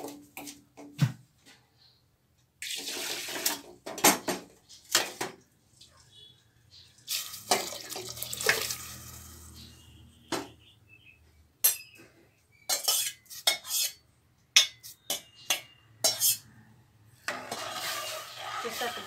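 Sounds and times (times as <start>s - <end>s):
water pouring into pot: 2.6s - 3.7s, 7.1s - 9.4s
spoon clinking against pot: 12.6s - 16.5s.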